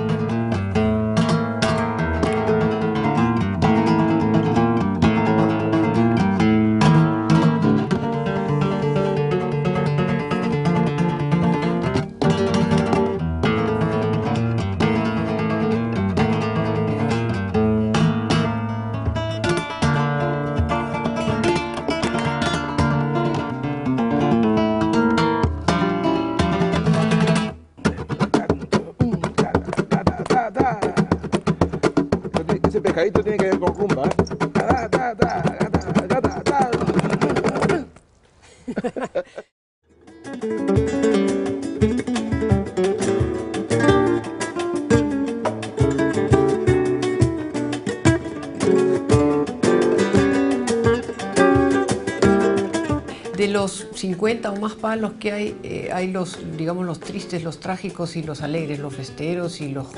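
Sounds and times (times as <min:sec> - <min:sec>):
flamenco guitar fingerpicking: 0:00.0 - 0:38.1, 0:39.9 - 0:59.9
hand clapping: 0:27.9 - 0:38.0
sharp strummed guitar chords: 0:39.9 - 0:55.8.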